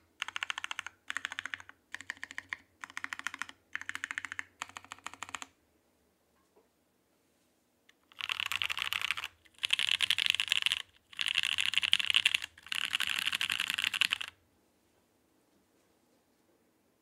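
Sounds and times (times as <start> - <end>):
fast mechanical keyboard typing: 0.2 - 5.5, 8.0 - 14.4.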